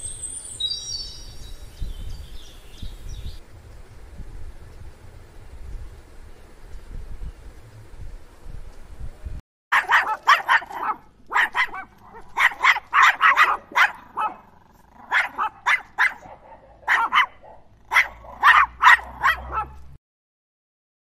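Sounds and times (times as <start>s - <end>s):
fox yipping and barking: 9.7s - 19.8s.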